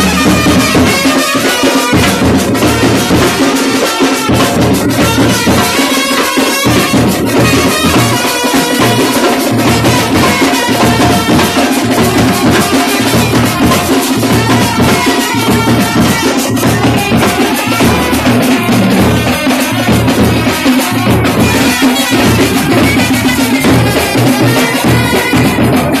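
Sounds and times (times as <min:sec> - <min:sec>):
drum band beating: 0:00.0 - 0:26.0.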